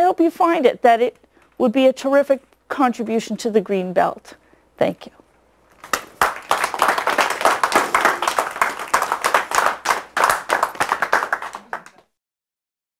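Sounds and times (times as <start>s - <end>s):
hands clapping: 5.7s - 12.1s.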